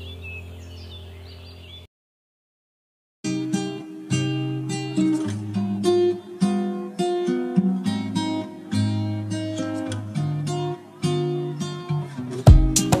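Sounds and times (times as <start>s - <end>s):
acoustic guitar plucking: 3.2s - 13.0s.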